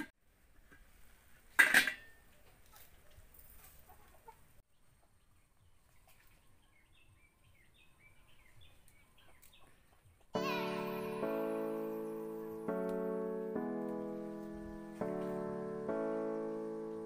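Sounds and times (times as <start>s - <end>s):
chickens clucking: 2.3s - 6.4s
piano music: 10.4s - 17.0s.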